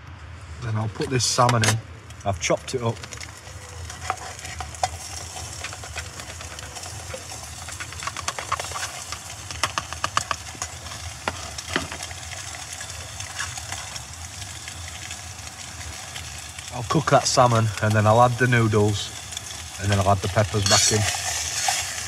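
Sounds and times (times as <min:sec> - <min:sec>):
fish sizzling in a pot: 0:02.8 - 0:22.0
utensil scraping a pot: 0:03.1 - 0:12.1, 0:19.9 - 0:22.0.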